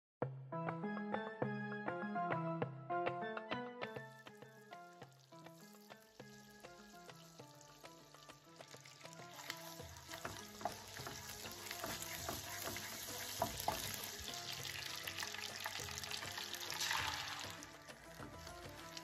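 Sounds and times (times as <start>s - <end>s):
background music: 0.2s - 19.0s
butter sizzling in frying pan: 4.3s - 19.0s
wooden spoon clicking on pan: 9.3s - 14.4s.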